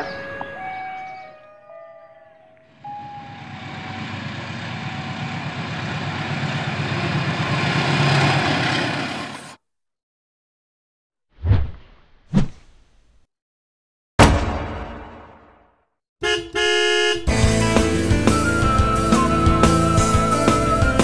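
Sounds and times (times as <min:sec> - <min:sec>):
diesel locomotive passing: 0:02.6 - 0:09.6.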